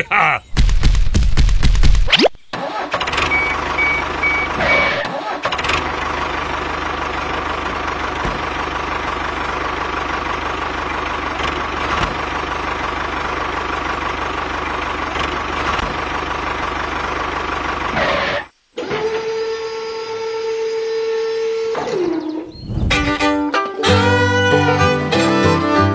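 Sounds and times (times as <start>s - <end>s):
tractor engine chugging: 2.5s - 18.5s.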